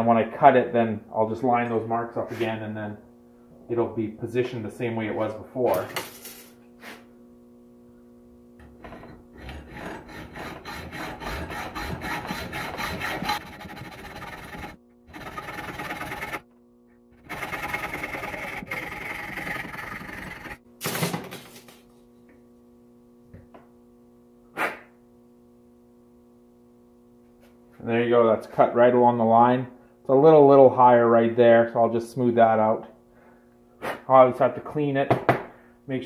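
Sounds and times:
hacksaw cutting metal: 0:09.4 - 0:16.4, 0:17.2 - 0:20.6.

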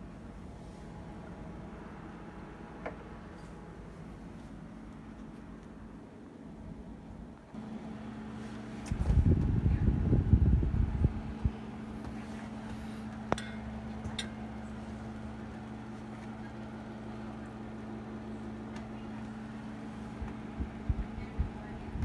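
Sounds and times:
refrigerator compressor humming: 0:00.0 - 0:22.0
low rumble: 0:08.4 - 0:15.2, 0:20.0 - 0:22.0.

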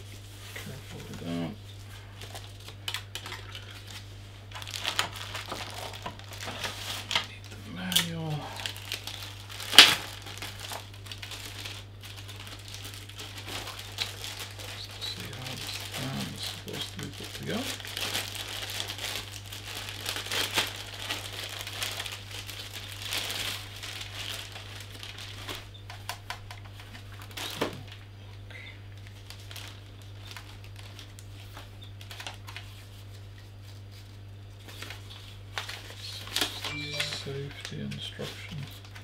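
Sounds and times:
steady low hum: 0:00.0 - 0:24.9
plastic bag crinkling: 0:00.1 - 0:25.7, 0:26.3 - 0:28.0, 0:28.9 - 0:39.0.

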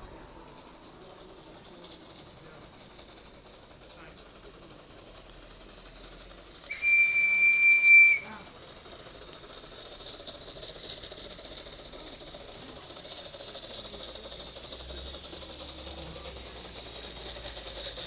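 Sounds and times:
steady steam hiss: 0:00.0 - 0:18.0
steam locomotive whistle: 0:06.7 - 0:08.5.

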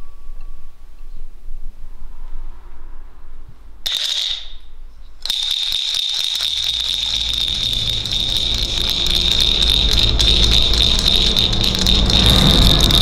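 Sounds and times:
electric bell ringing: 0:05.2 - 0:13.0.

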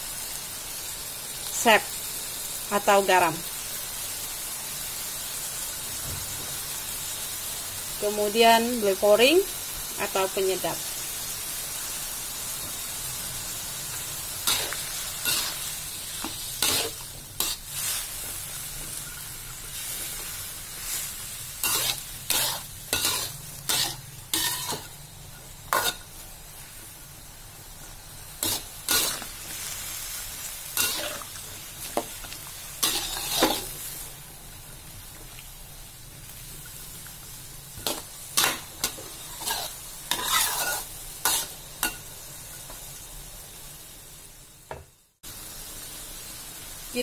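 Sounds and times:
stir-fry sizzle: 0:00.0 - 0:47.0
metal spatula scraping a wok: 0:14.4 - 0:26.2, 0:28.4 - 0:29.7, 0:30.6 - 0:34.0, 0:37.7 - 0:42.0.

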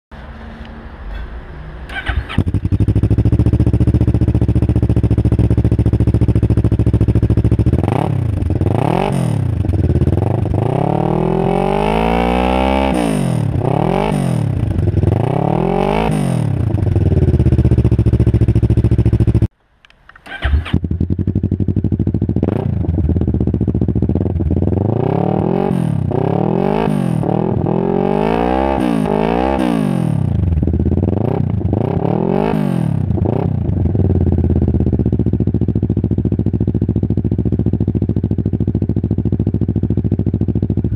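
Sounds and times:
motorcycle engine revving: 0:01.8 - 0:19.5, 0:20.2 - 0:40.9.

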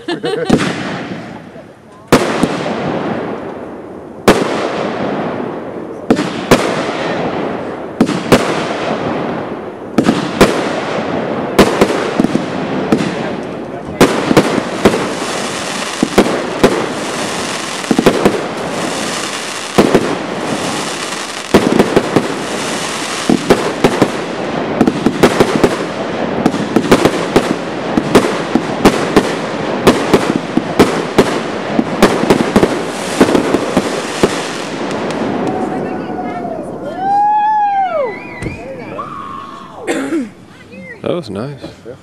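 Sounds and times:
fireworks crackling hiss: 0:00.0 - 0:37.4
fireworks bangs: 0:00.0 - 0:39.0.

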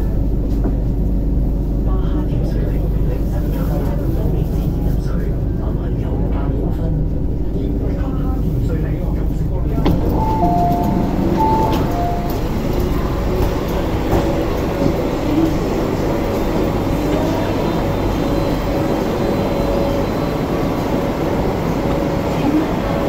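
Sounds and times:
train hum and rumble: 0:00.0 - 0:23.0
two-note chime: 0:10.2 - 0:12.6.

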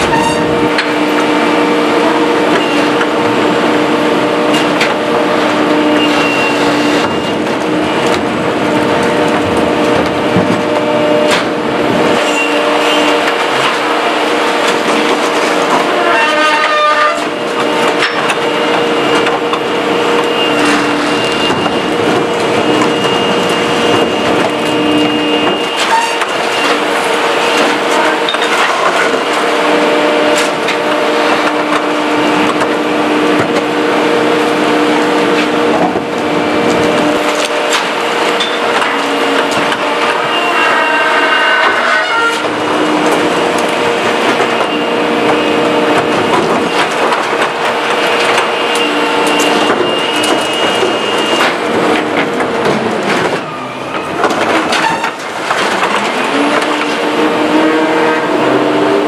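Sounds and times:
hydraulics whining: 0:00.0 - 0:59.0
refuse crackling and crunching: 0:41.7 - 0:57.3.

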